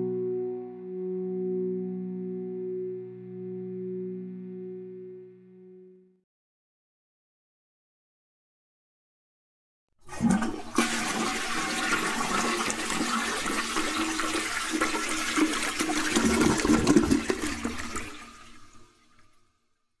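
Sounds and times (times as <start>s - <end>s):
toilet flushing: 10.0s - 19.4s.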